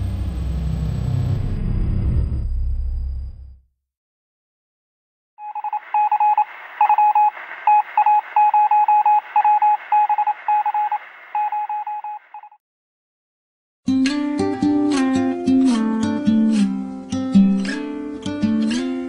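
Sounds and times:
morse code beeps: 0:05.4 - 0:12.6
radio static hiss: 0:05.6 - 0:12.4.

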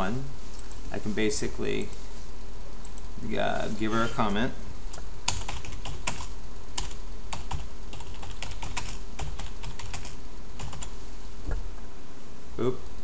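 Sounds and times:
typing on keyboard: 0:05.3 - 0:10.9.

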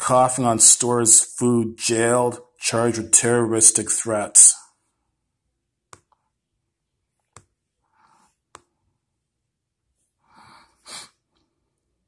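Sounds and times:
soft breath: 0:07.8 - 0:08.5, 0:10.1 - 0:11.8.

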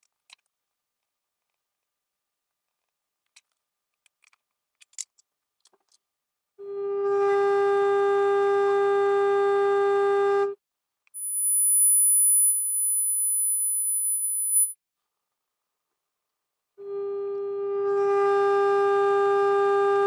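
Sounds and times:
high-pitched pure tone: 0:11.2 - 0:14.8
mid-pitched test tone: 0:11.2 - 0:14.8.

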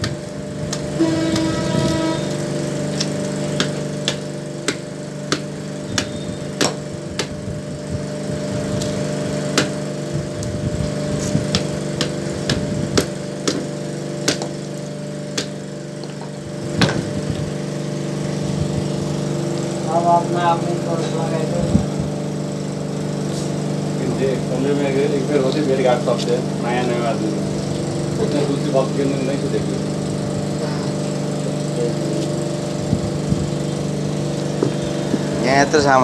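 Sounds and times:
machine hum: 0:00.0 - 0:36.0
metal rod knocking coconut shell: 0:03.0 - 0:07.4, 0:11.5 - 0:14.6.

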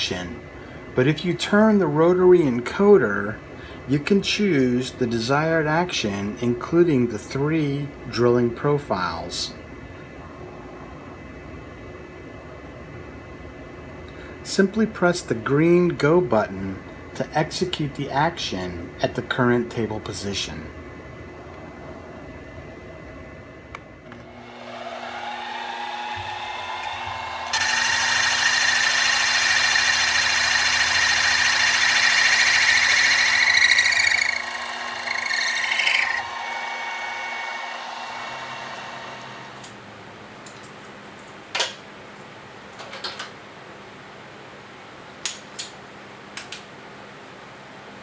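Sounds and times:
spindle motor whine: 0:24.0 - 0:39.7
drill cutting aluminium: 0:24.3 - 0:39.4.

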